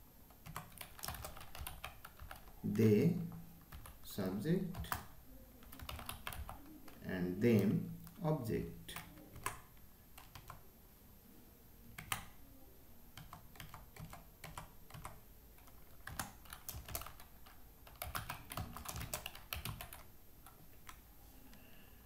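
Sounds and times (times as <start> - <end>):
computer keyboard typing: 0.3 - 2.6, 3.6 - 4.0, 4.6 - 8.2, 8.9 - 10.6, 12.0 - 12.4, 13.2 - 21.0.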